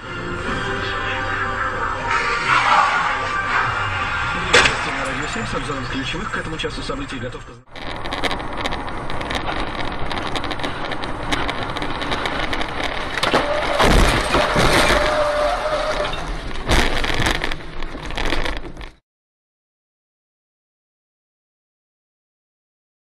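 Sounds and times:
steady tone: 0.0 - 13.2
car driving: 0.0 - 19.0
loud crash: 0.4 - 6.4, 7.7 - 18.8
sharp bang: 1.3 - 5.5.

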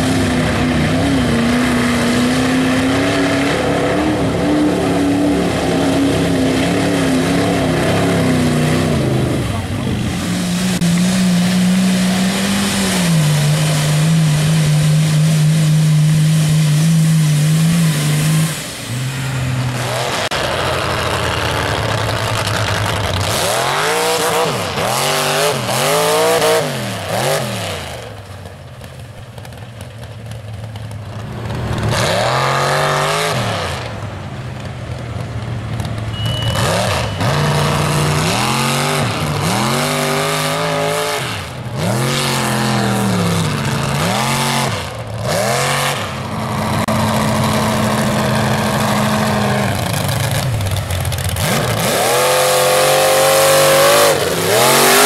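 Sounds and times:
truck engines revving: 0.0 - 55.0.

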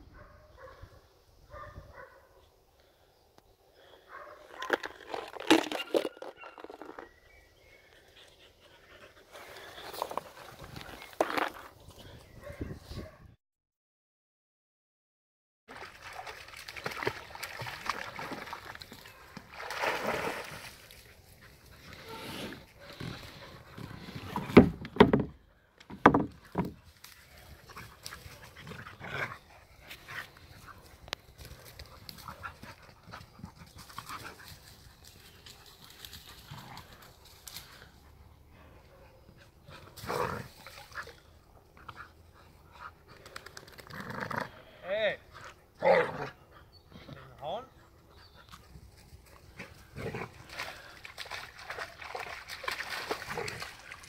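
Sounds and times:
sharp dog sounds: 5.6 - 7.0
dogs playing and tussling: 26.4 - 38.2.

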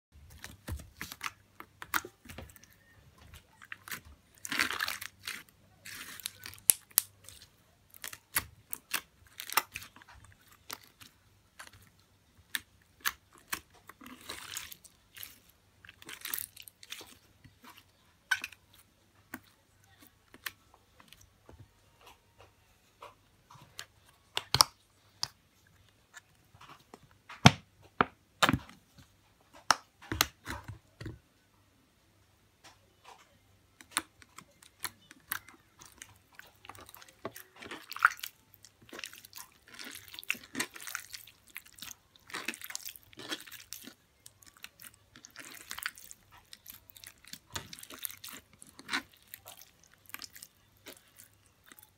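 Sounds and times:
slime crackling: 0.2 - 21.2, 33.8 - 51.9
slime clicking and popping: 3.8 - 7.2.

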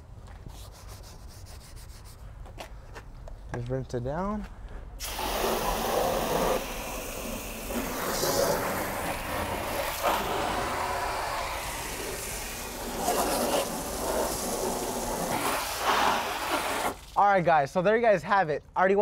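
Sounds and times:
water spray hissing on metal: 5.0 - 17.2.

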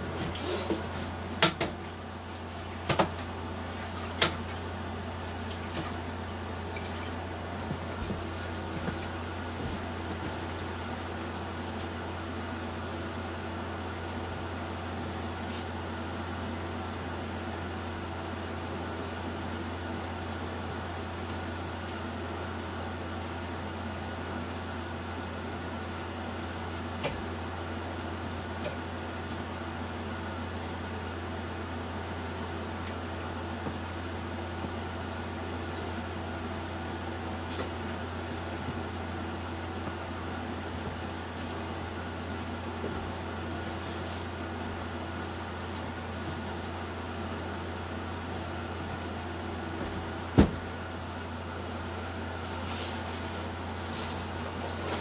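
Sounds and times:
mop knocking floor and cabinets: 0.0 - 4.6, 6.8 - 11.1, 49.7 - 50.8
steady low hum: 0.0 - 55.0.

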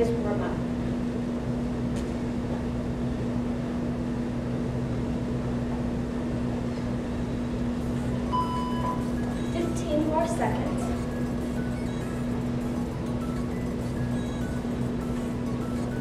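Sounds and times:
low room hum: 0.0 - 16.0
short high beep: 8.2 - 9.7.

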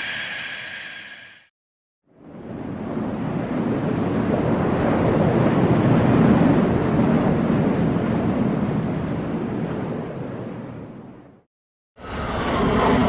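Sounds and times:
jet aircraft flying by: 12.0 - 13.0.

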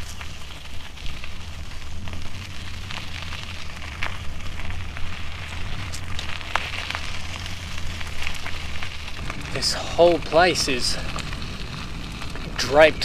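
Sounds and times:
dry leaves and twigs crackling: 0.0 - 13.0
low microphone rumble: 0.0 - 13.0.

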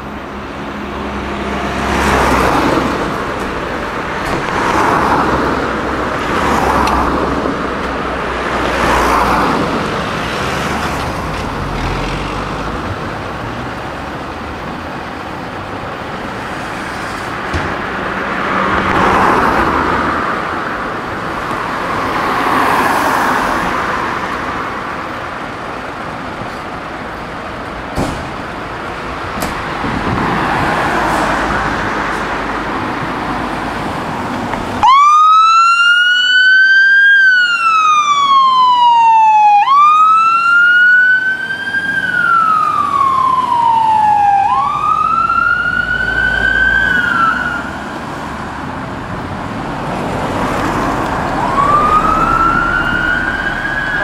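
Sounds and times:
road traffic rumble: 0.0 - 54.0
fire engine siren wailing: 34.8 - 48.3, 50.4 - 54.0.

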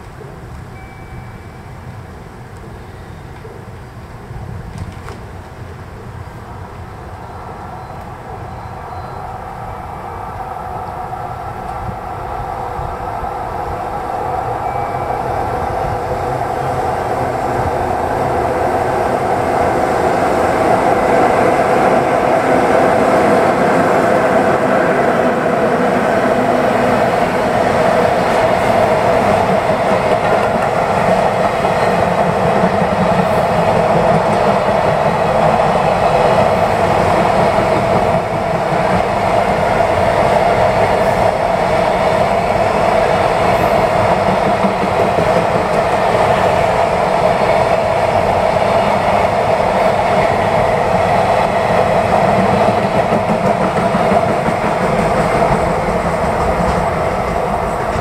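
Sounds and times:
freight train wheels on rail: 0.0 - 58.0
constant ringing tone: 0.7 - 3.3, 13.9 - 18.5.

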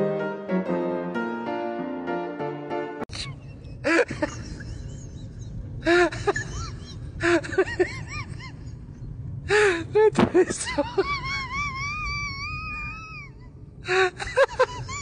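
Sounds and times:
person laughing: 3.1 - 8.8, 10.0 - 13.3, 13.9 - 15.0
low background rumble: 3.1 - 15.0.

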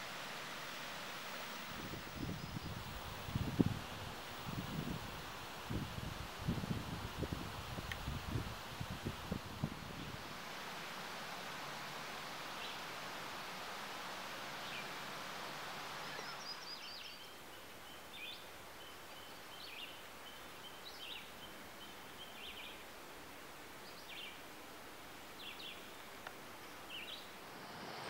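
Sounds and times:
wind rustling leaves: 0.0 - 28.0
songbirds chirping: 1.4 - 5.5, 9.9 - 28.0.

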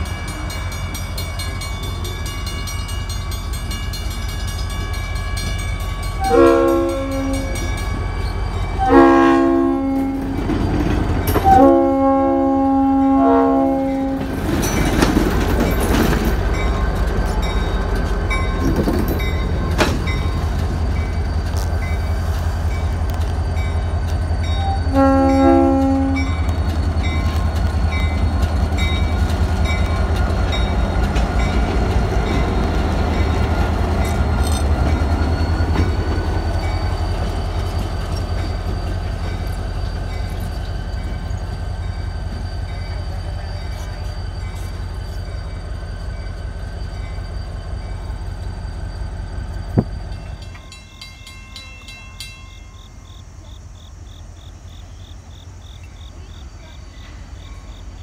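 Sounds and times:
level-crossing bell ringing: 0.0 - 9.0, 38.4 - 53.1
diesel locomotive engine rumble: 0.0 - 58.0
locomotive horn blast: 6.2 - 7.7, 8.8 - 10.5, 11.4 - 14.4, 24.6 - 26.5
crickets trilling: 13.7 - 58.0.

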